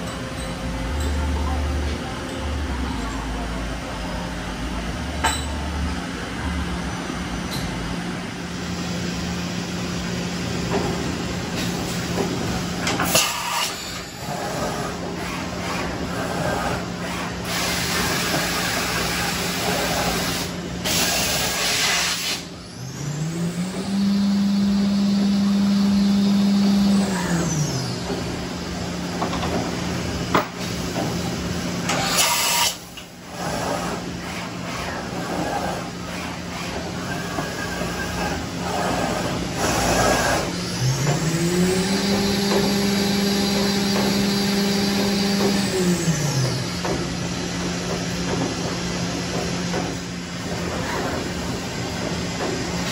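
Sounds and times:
milling machine hum: 0:00.0 - 0:52.9
motor whine: 0:22.7 - 0:28.1.

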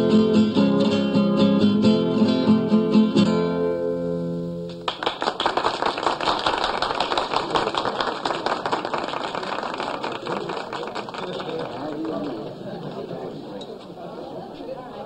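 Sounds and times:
fingerstyle acoustic guitar: 0:00.0 - 0:04.8
small group clapping: 0:04.7 - 0:13.1.

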